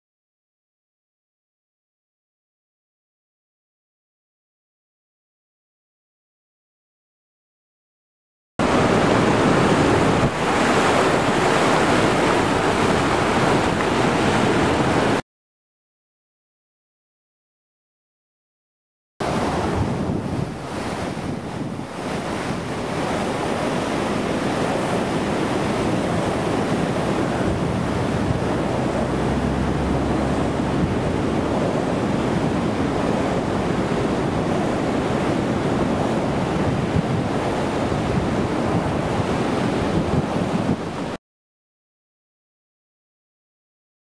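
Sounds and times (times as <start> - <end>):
water rushing over a dam: 8.6 - 15.2, 19.2 - 41.2
wind buffeting microphone: 8.6 - 15.2, 19.2 - 41.2.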